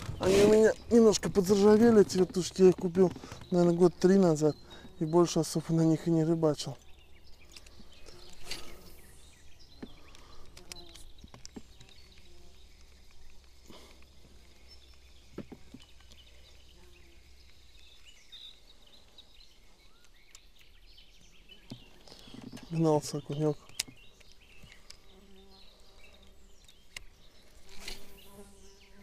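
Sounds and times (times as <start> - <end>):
faint bird chirps: 0.0 - 29.0
light clicks and knocks: 1.4 - 3.8.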